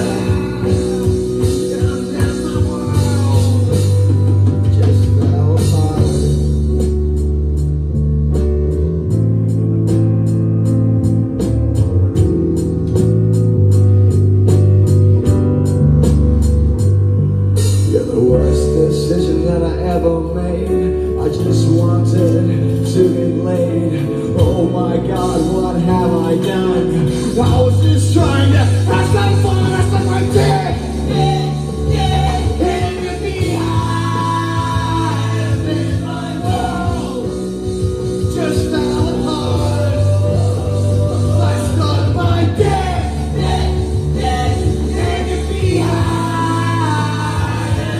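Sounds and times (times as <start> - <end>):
man singing: 0.0 - 6.6, 17.8 - 47.9
bass guitar: 0.0 - 47.9
keyboards: 0.0 - 47.9
live band playing: 0.0 - 47.9.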